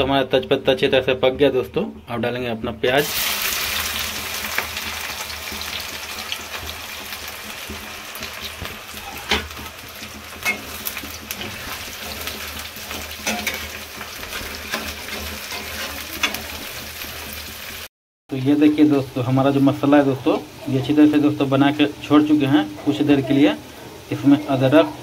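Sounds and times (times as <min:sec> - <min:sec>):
onions sizzling in hot oil: 0:03.0 - 0:25.0
metal spatula scraping pan: 0:08.6 - 0:17.1.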